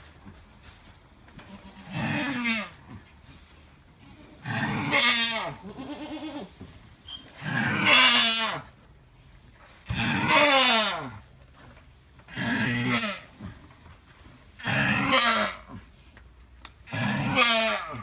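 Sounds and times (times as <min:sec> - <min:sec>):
goat crying out: 0:04.4 - 0:06.5, 0:07.4 - 0:08.7, 0:09.9 - 0:11.2, 0:12.4 - 0:13.3, 0:14.6 - 0:15.8, 0:16.9 - 0:18.0.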